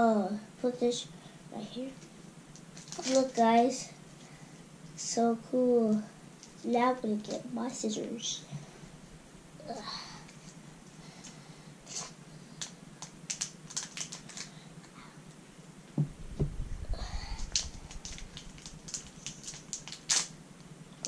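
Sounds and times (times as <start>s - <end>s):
wrapper crinkling and tearing: 2.6s - 3.5s, 11.9s - 14.5s, 17.4s - 20.4s
scissors snipping wrapper: 2.8s - 3.4s, 11.9s - 14.5s, 17.5s - 20.3s
low thump: 16.0s - 16.9s.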